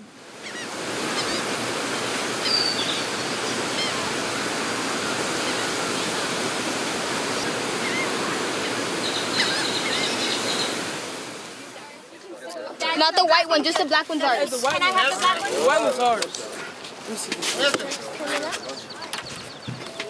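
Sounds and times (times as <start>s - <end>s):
surf breaking on beach: 0.0s - 11.8s.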